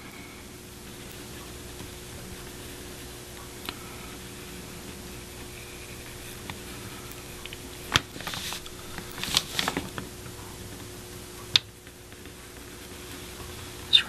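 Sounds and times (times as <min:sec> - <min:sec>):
faint steady hum: 0:00.0 - 0:14.0
scratchy rustles: 0:00.9 - 0:10.2
brush on paper clicks: 0:01.0 - 0:10.1.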